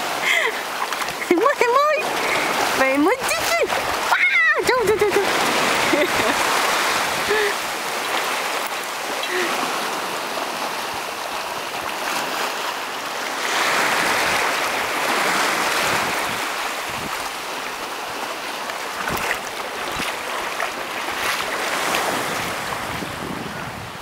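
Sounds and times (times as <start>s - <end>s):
waves washing over rocks: 0.0s - 24.0s.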